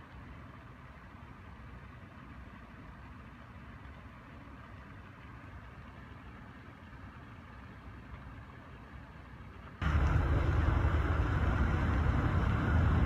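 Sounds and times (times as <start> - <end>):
faint low outdoor rumble: 0.0 - 13.0
gusty wind buffeting microphone: 9.8 - 13.0.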